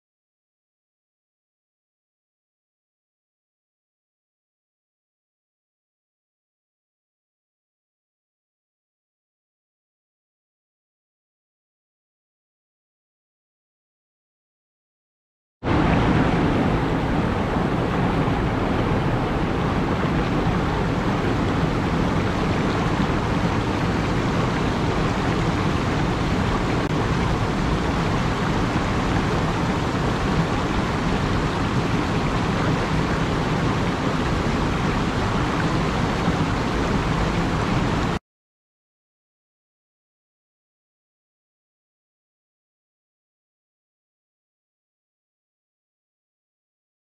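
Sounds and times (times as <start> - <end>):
cascading water roar: 15.7 - 38.2.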